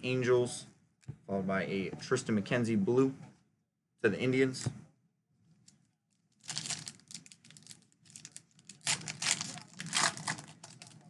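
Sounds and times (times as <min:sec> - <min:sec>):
card pack wrapper crinkling: 0:06.4 - 0:11.0.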